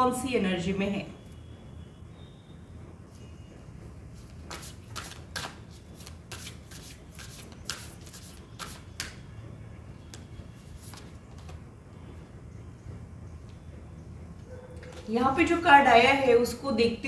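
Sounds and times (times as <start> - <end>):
cards being shuffled by hand: 4.2 - 9.2, 10.7 - 11.6.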